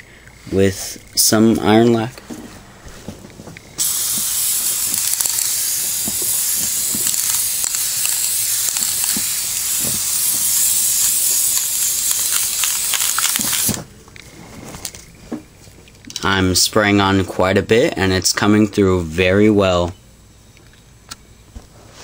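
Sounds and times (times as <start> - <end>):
spray paint can hissing: 3.8 - 13.8.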